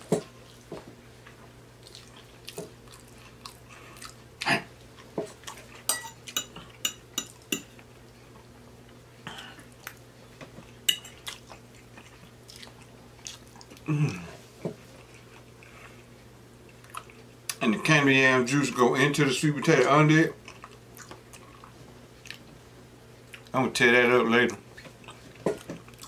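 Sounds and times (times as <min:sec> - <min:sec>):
chewing: 0:00.4 - 0:06.8, 0:10.6 - 0:13.9, 0:14.8 - 0:16.1, 0:16.7 - 0:17.6, 0:20.4 - 0:22.5, 0:24.7 - 0:26.0
fork clinking on plate: 0:05.9 - 0:07.7.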